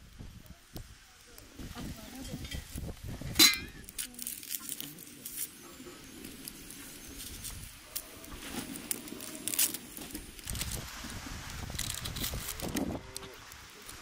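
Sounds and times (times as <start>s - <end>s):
onion skin crackling and rustling: 0.6s - 14.0s.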